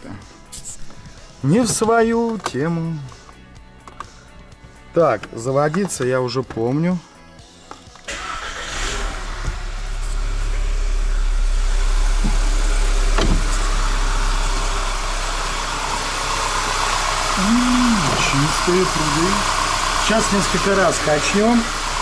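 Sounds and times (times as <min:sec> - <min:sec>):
car engine idling: 0:08.1 - 0:22.0.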